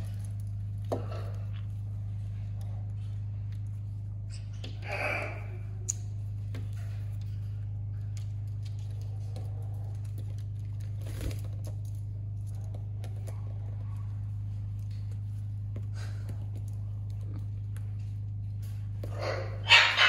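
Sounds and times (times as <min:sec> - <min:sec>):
parrots clicking and rustling: 0:00.0 - 0:20.0
steady low hum: 0:00.0 - 0:20.0.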